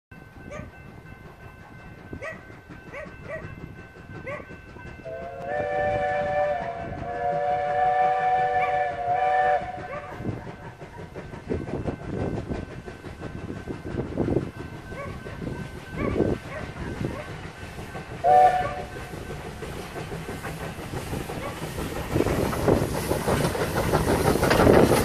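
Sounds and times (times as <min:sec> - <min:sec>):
steam locomotive whistle: 0:05.0 - 0:10.8, 0:18.2 - 0:19.8.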